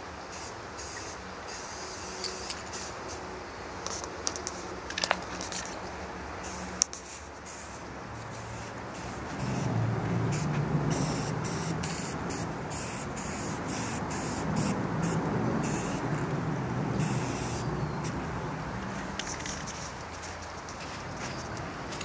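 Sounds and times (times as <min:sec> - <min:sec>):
spray-paint can hissing: 0:00.3 - 0:03.2, 0:06.4 - 0:16.1, 0:17.0 - 0:17.6.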